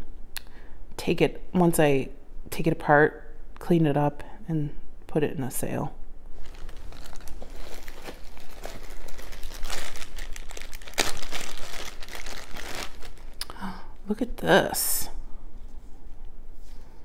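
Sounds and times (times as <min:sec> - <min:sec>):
plastic bags crinkling: 0:06.4 - 0:13.4.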